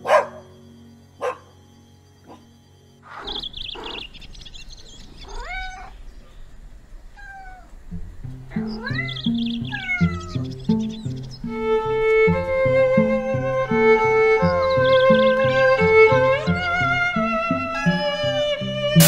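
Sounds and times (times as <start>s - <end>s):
background music: 0.0s - 4.0s, 8.0s - 19.0s
cat meowing: 5.2s - 6.0s, 7.1s - 7.7s, 8.5s - 10.5s, 14.8s - 19.0s.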